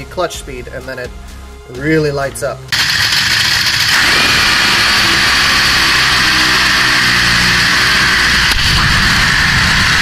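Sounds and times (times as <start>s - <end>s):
dragster engine at full throttle: 2.7s - 10.0s.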